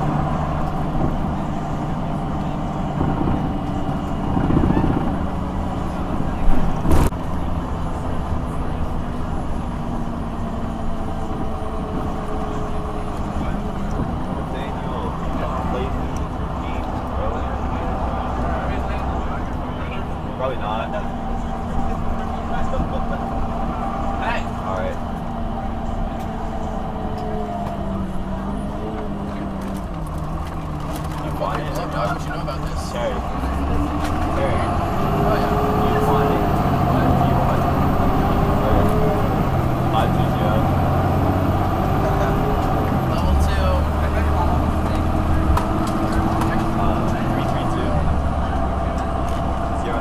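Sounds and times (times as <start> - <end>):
bus diesel engine drone: 0.0 - 50.0.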